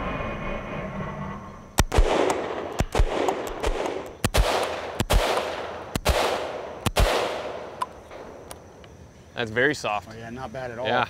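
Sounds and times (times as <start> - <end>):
rifle gunshots: 1.8 - 7.8
ringing echo of gunshot: 1.8 - 7.8.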